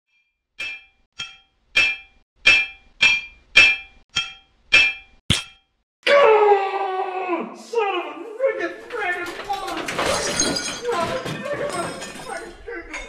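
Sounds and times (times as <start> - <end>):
hammer clanging on anvil: 0.6 - 5.6.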